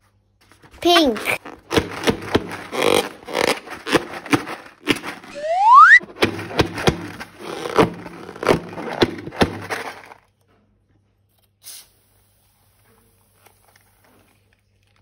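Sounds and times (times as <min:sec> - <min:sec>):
rubbery balloon squeak: 0:00.8 - 0:09.9
slime cracking and crackling: 0:01.1 - 0:05.3.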